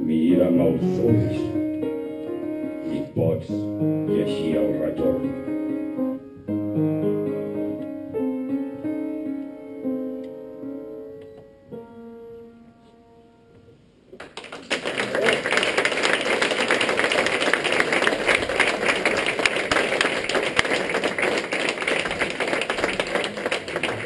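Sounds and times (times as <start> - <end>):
piano notes: 0.0 - 14.0
audience applause: 14.2 - 24.0.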